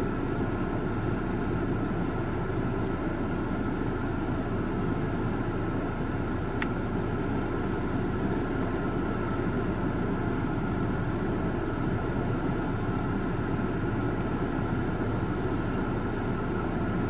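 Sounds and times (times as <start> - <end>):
car engine idling: 0.0 - 17.0
faint click: 6.6 - 6.8.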